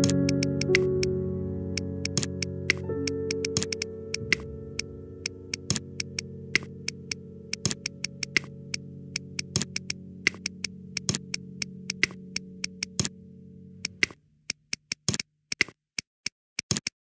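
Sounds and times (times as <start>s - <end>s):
computer mouse clicks: 0.0s - 0.8s, 2.0s - 2.8s, 3.4s - 4.5s, 5.5s - 13.1s, 13.8s - 17.0s
synthesizer background music: 0.0s - 14.2s.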